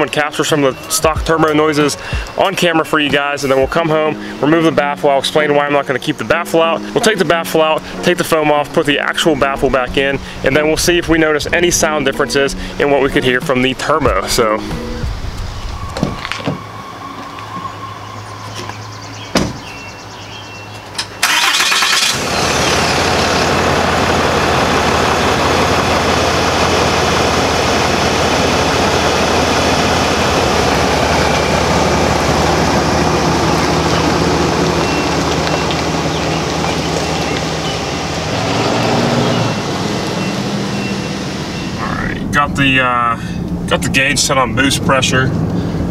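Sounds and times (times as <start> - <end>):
diesel engine starting and idling: 0.0 - 45.9
truck door shutting: 14.1 - 16.7, 18.4 - 20.0.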